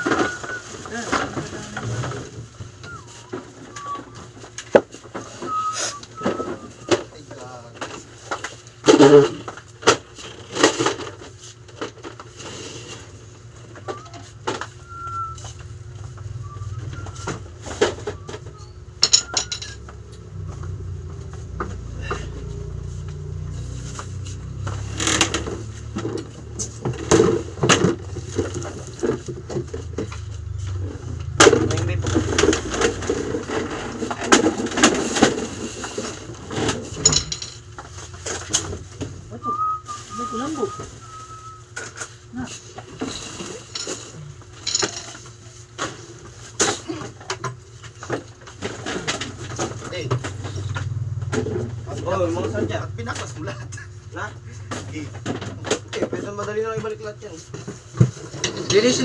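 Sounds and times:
knocks and clatter of objects: 0:00.0 - 0:05.6, 0:06.2 - 0:13.0, 0:13.6 - 0:39.2, 0:41.8 - 0:59.0
low rumble: 0:28.0 - 0:34.0, 0:49.6 - 0:55.5.

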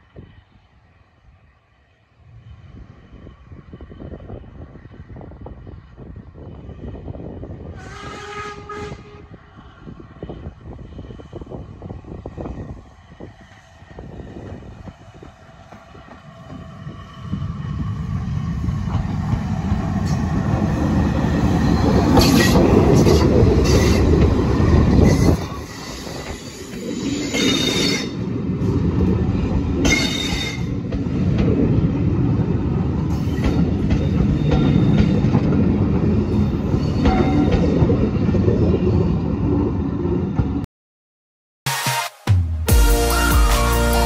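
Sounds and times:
steam locomotive passing: 0:00.0 - 0:40.6
train wheels clattering over rails: 0:33.0 - 0:38.0.

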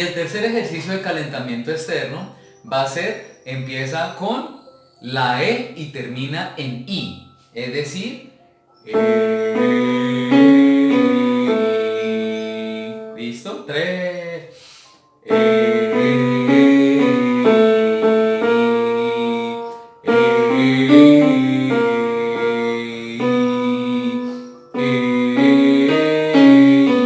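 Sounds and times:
electronic keyboard piano phrase: 0:00.0 - 0:14.1, 0:15.2 - 0:27.0.

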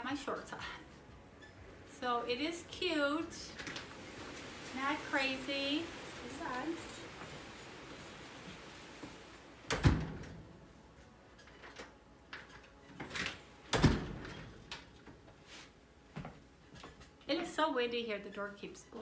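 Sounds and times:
door banging shut: 0:09.7 - 0:10.5, 0:13.7 - 0:14.6.

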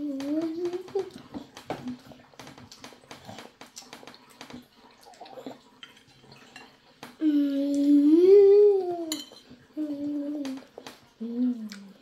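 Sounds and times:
person humming: 0:11.2 - 0:12.0.

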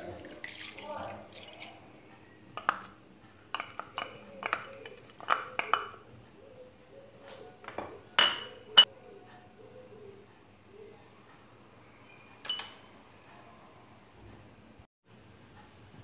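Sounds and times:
spoon clinking against glass bowl: 0:02.6 - 0:06.0, 0:07.7 - 0:08.9.

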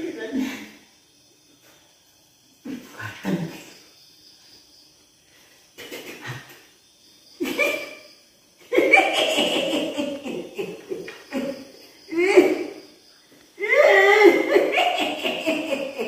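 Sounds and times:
old woman cackling laugh: 0:07.4 - 0:08.0, 0:08.6 - 0:12.8, 0:13.6 - 0:16.0.

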